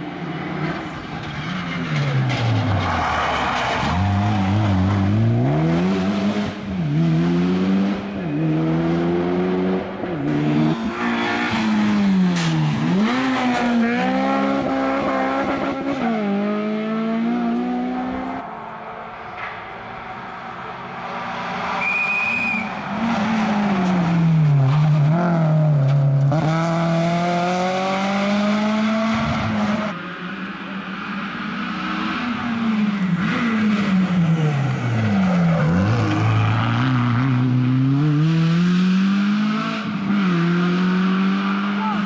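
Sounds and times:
rally car engines revving: 0:00.0 - 0:42.0.

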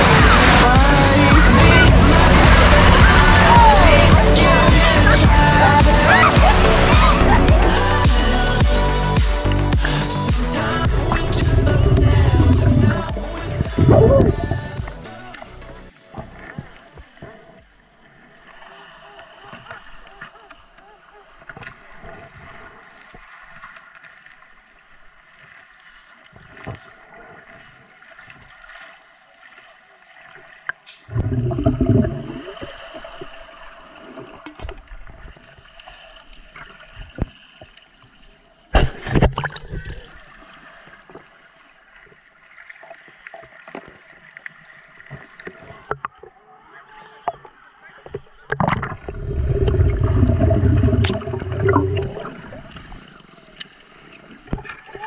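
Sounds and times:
muffled low rumbles: 0:00.0 - 0:07.8, 0:10.6 - 0:15.0.

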